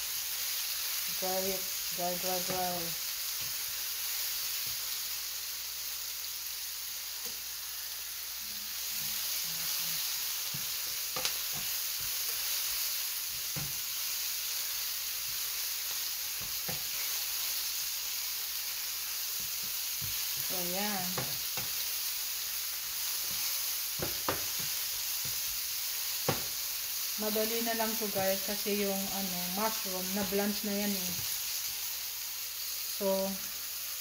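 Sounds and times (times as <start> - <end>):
vegetables sizzling in a frying pan: 0.0 - 34.0
spatula scraping a pan: 8.6 - 14.1.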